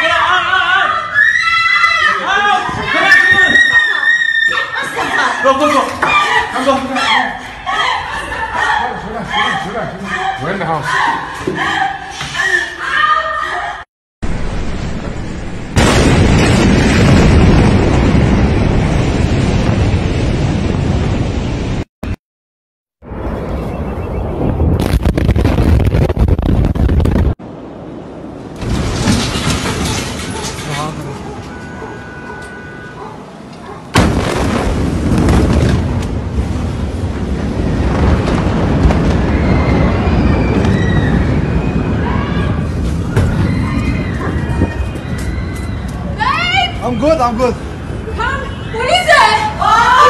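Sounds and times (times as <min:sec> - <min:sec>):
explosion rumbling roar: 0:14.2 - 0:21.9, 0:23.0 - 0:29.8, 0:34.0 - 0:45.8.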